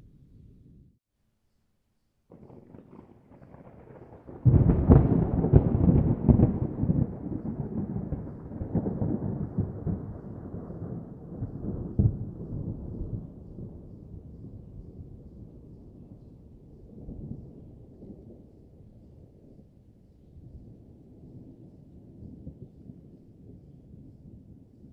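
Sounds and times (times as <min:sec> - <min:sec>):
thunder clap: 0:02.3 - 0:13.4
thunder rumble: 0:02.3 - 0:19.0.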